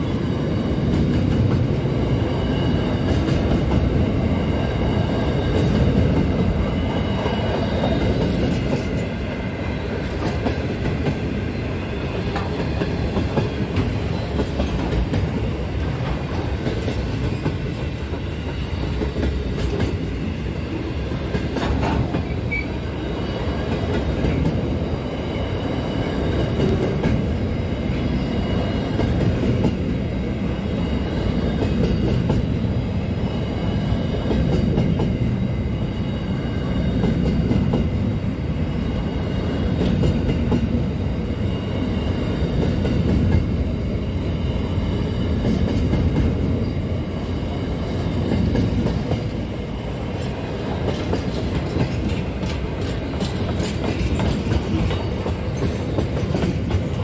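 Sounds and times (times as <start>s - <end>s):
train wheels rumbling on rails: 0.0s - 57.0s
wheels clicking over rail joints: 50.2s - 57.0s.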